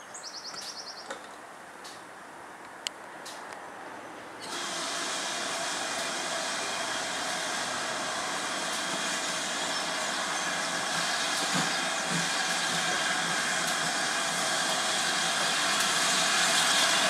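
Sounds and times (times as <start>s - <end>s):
steam locomotive hissing steam: 4.4s - 17.0s.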